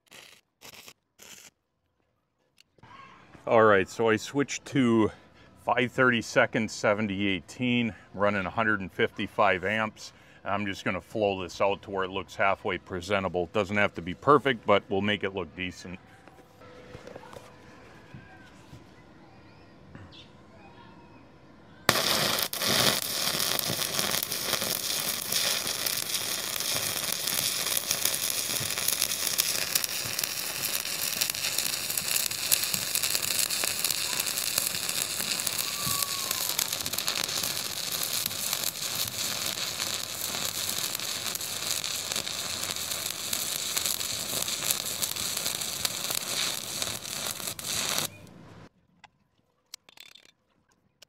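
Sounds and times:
welding arc crackling: 0.0s - 1.5s, 21.9s - 48.2s.

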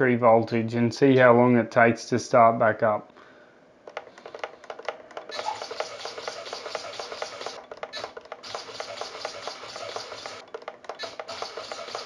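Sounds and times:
servos buzzing and clicking: 5.3s - 12.0s.

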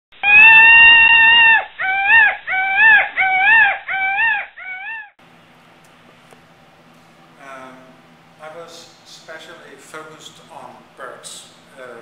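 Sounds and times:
loud animal call: 0.2s - 5.1s.

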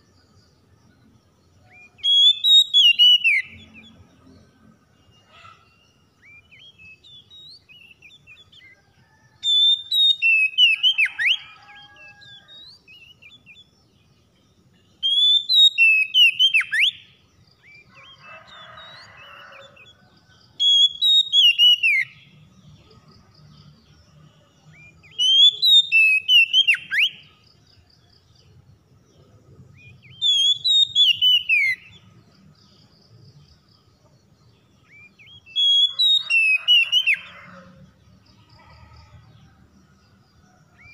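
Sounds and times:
bird singing whistled phrases: 1.7s - 3.8s, 9.5s - 11.4s, 15.0s - 17.0s, 20.6s - 22.2s, 24.8s - 27.2s, 30.1s - 31.9s, 34.9s - 37.2s.

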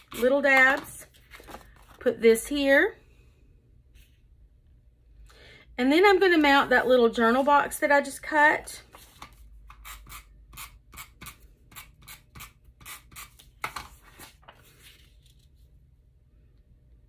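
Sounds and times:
faint paper handling: 1.0s - 2.1s, 8.8s - 9.5s, 13.4s - 15.8s.

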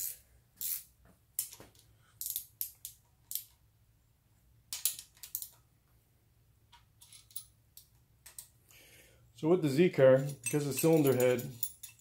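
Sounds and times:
wrench clicking and scraping on metal: 0.0s - 3.6s, 10.2s - 12.0s.

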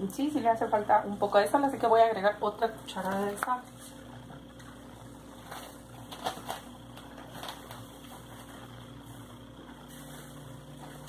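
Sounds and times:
steady low hum: 0.0s - 11.0s
dough squishing: 2.6s - 11.0s.

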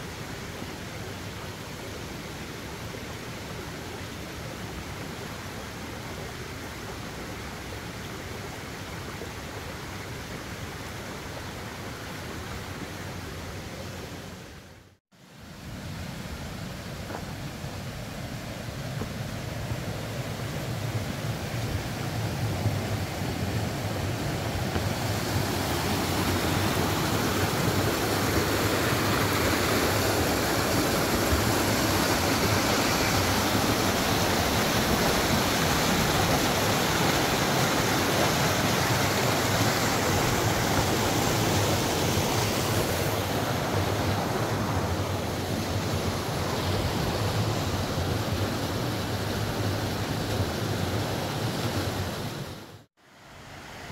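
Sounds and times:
river water rushing over rocks: 15.4s - 53.9s.

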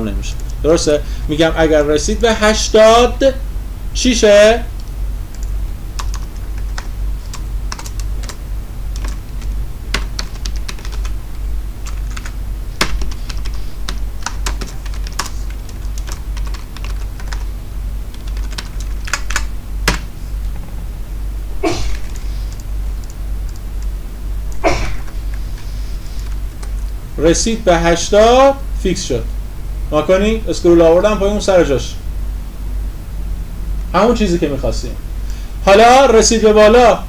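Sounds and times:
steady low hum: 0.0s - 37.0s
computer keyboard typing: 4.8s - 11.2s, 11.8s - 17.5s, 18.1s - 20.7s.

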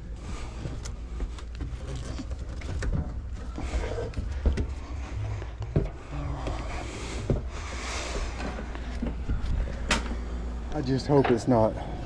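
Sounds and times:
knocks and creaks of wood: 0.0s - 10.2s
steady low hum: 0.0s - 12.0s.

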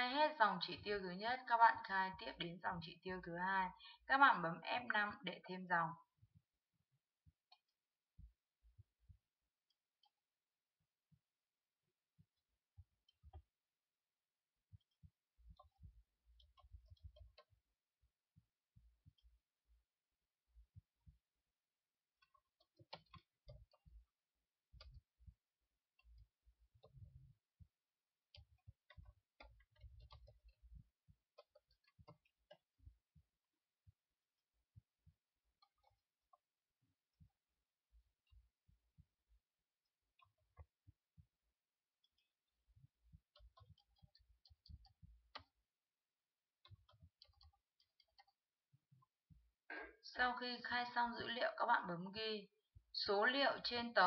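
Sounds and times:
keyboard typing: 28.4s - 33.3s, 46.6s - 48.4s.

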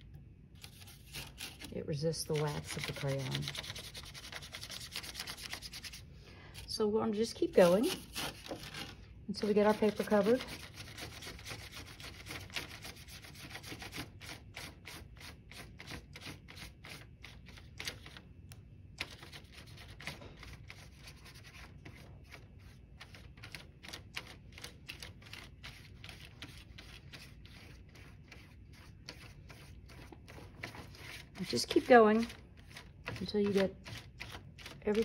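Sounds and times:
paintbrush scrubbing on paper: 0.6s - 6.8s, 7.5s - 17.6s, 19.0s - 35.0s.

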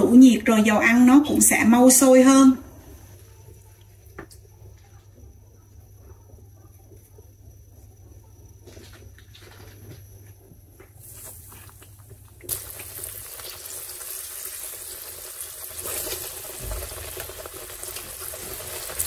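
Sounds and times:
oil sizzling in frying pan: 10.9s - 19.0s.

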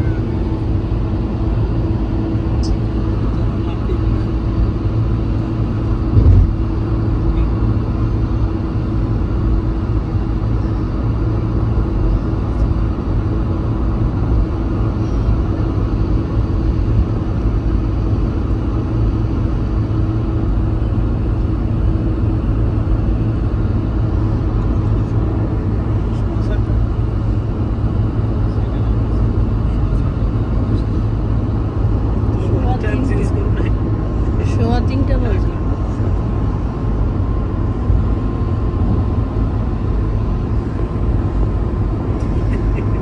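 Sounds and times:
faint hum: 0.0s - 43.0s
tyre and engine rumble: 0.0s - 43.0s
brief thump: 6.1s - 6.6s.

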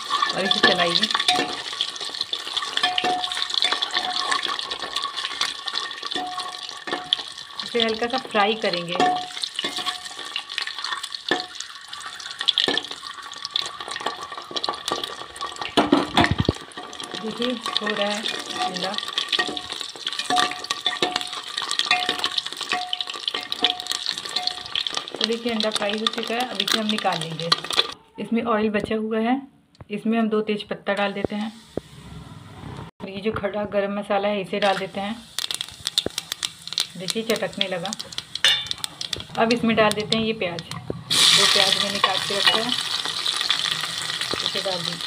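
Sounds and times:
eggs sizzling in hot oil: 0.0s - 28.0s, 30.9s - 32.0s, 33.8s - 45.0s
metal spatula scraping pan: 0.0s - 28.0s, 38.4s - 45.0s.

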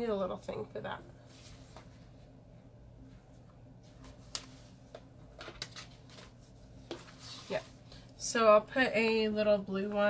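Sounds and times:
steady low hum: 0.0s - 10.0s
paper sticker sheets rustling: 3.9s - 7.7s.

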